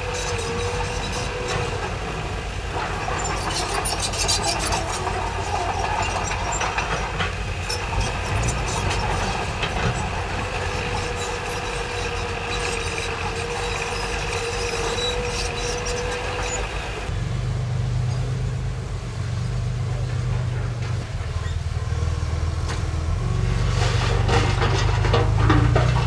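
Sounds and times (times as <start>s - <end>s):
steady whining tone: 0.0s - 17.2s
diesel engine running: 0.0s - 26.0s
metallic clanks and rattles: 23.7s - 26.0s.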